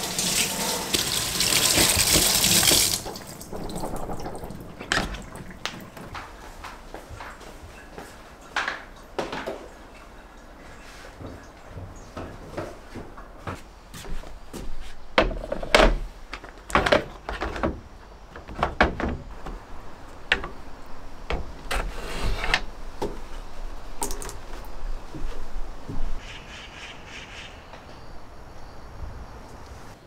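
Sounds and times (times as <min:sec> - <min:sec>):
hard plastic parts knocking: 0:15.2 - 0:21.8.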